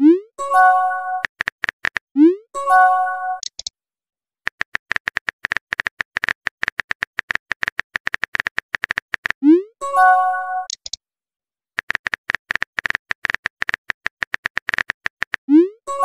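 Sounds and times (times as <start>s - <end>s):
notification chime: 9.8s - 10.7s.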